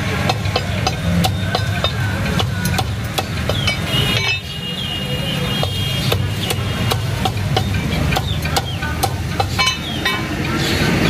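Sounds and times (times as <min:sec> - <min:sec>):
cleaver chopping on wooden block: 0:00.2 - 0:03.9, 0:05.6 - 0:09.6.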